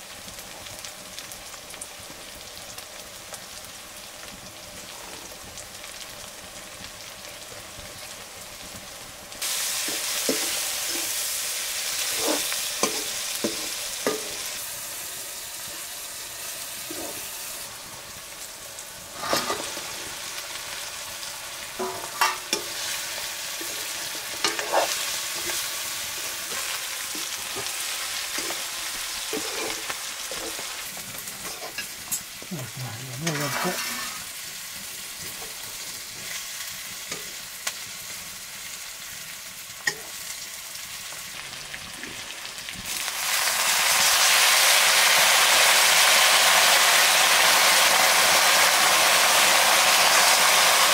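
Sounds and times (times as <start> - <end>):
food sizzling in a pan: 0.0 - 50.9
spoon scraping against a pan: 12.0 - 14.5, 16.8 - 17.3, 19.2 - 19.8, 23.6 - 32.3, 33.2 - 34.3.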